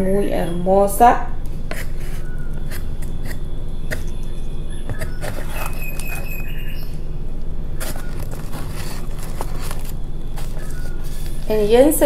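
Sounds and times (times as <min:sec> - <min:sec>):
steady low hum: 0:00.0 - 0:12.0
high chirp: 0:02.1 - 0:08.2.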